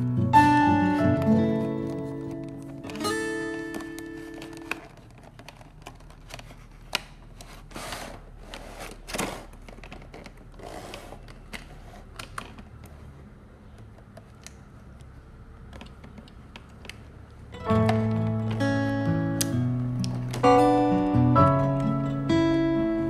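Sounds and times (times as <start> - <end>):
plastic crinkling rustles: 1.8 - 12.9.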